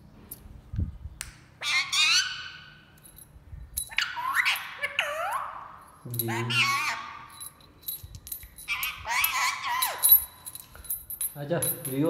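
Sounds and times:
parrot squawking: 1.6 - 2.8, 3.9 - 7.4, 8.7 - 10.4.

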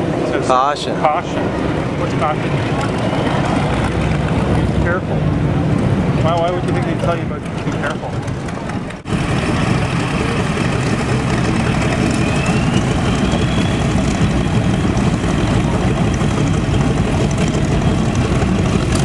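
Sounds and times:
radial aircraft engines running: 0.0 - 19.0
faint rising whistle: 11.6 - 14.6.

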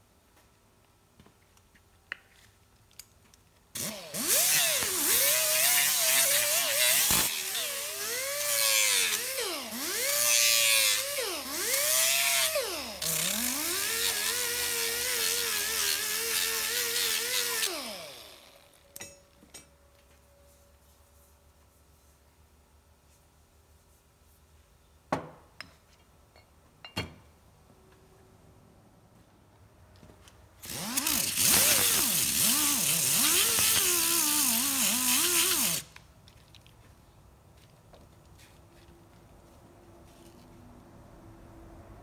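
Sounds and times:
pneumatic die grinder whining: 3.8 - 18.8, 30.6 - 36.0.

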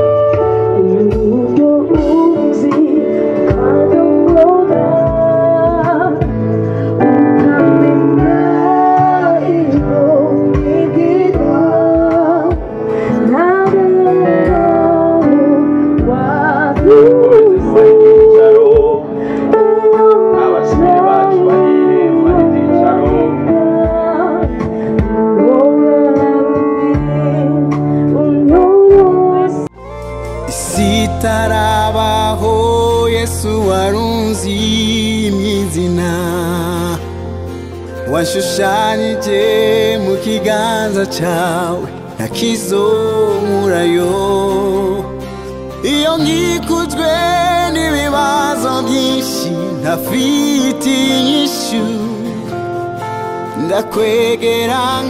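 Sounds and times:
acoustic guitar: 0.0 - 55.0
electric keyboard: 0.0 - 55.0
women singing: 0.8 - 32.1.

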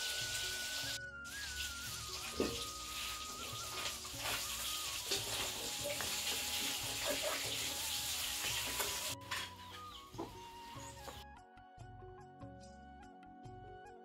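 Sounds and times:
hiss with crackles: 0.0 - 9.2
soft background music: 0.0 - 14.0.

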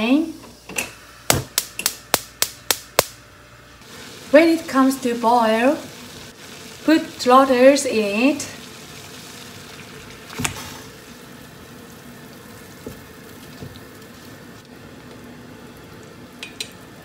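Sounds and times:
water boiling in a pot: 3.8 - 17.0.

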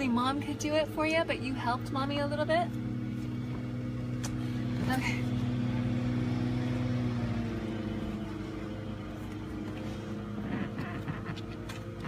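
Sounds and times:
car engine idling: 0.0 - 12.0
faint clicks and rustles: 9.1 - 12.0.

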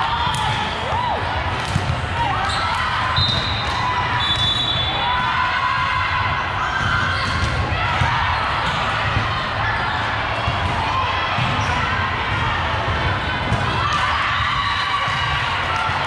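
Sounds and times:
voices in a hall: 0.0 - 16.0
ball bouncing on gym floor: 1.6 - 2.1.

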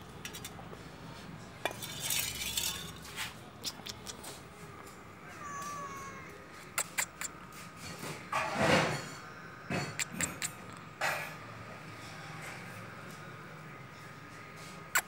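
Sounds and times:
metal bowl clinking on concrete: 1.6 - 3.2
cat meowing: 5.2 - 7.3.

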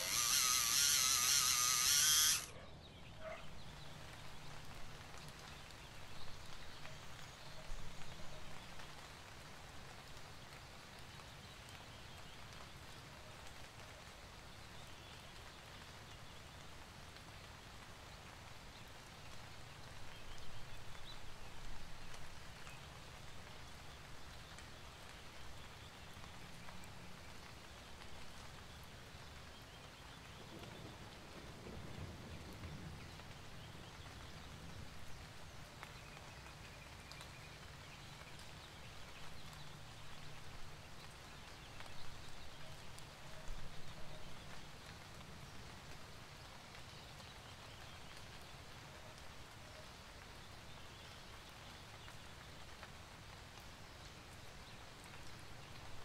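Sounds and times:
electric pencil sharpener grinding: 0.0 - 2.5.

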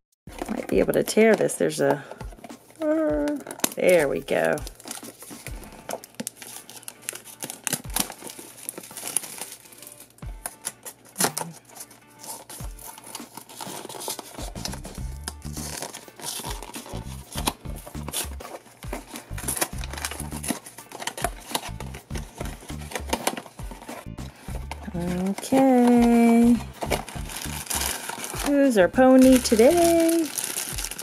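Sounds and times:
cellophane wrapper crinkling and tearing: 0.3 - 1.5, 2.4 - 31.0
cardboard box rustling: 4.5 - 31.0
background music with bass line: 14.4 - 15.8, 16.9 - 20.6, 21.6 - 25.4, 26.0 - 29.9.

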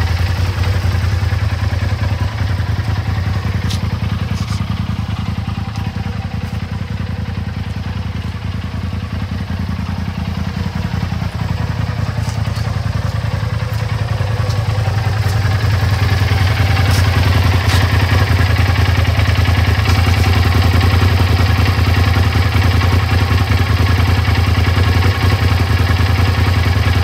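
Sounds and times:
engine idling close to exhaust: 0.0 - 27.0.

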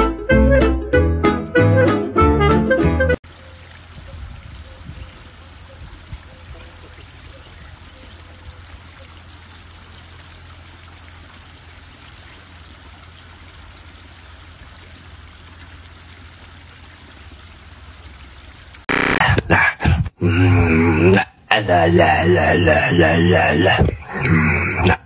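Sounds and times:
water splashing into pond: 3.2 - 19.0.

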